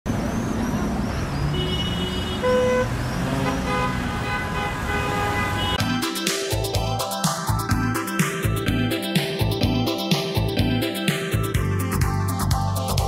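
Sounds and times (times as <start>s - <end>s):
street traffic: 0.0s - 13.0s
car horn toots: 1.5s - 5.8s
music: 5.8s - 13.0s.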